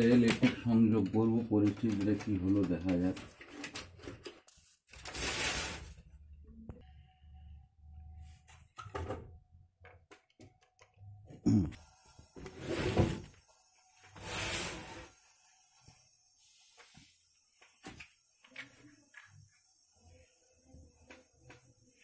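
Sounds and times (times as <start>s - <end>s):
high-pitched whine: 11.8s - 22.0s
television hiss: 11.8s - 22.0s
television powering on thump: 12.4s - 13.5s.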